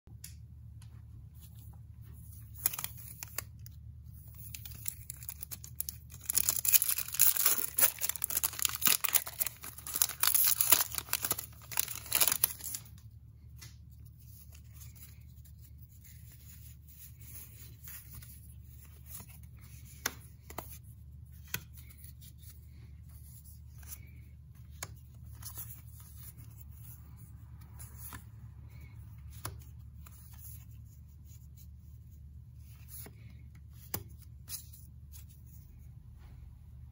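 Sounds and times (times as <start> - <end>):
cards rustling and clicking: 1.4 - 31.8, 32.5 - 35.7
foil wrapper tearing and crinkling: 4.3 - 12.9.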